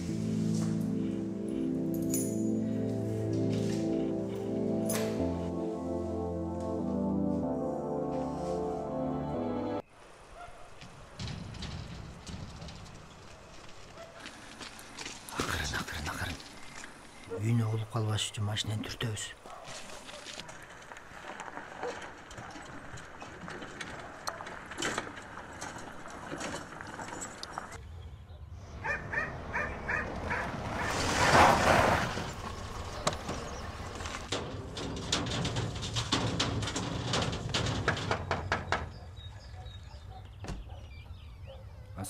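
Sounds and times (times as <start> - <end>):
dog barking: 10.4 - 10.8, 14.0 - 14.2, 19.4 - 20.4, 21.8 - 22.6, 28.8 - 31.4, 39.0 - 41.8
car driving on gravel: 10.9 - 17.6, 20.0 - 27.8, 29.3 - 37.8
scattered clicks and knocks: 34.3 - 39.0.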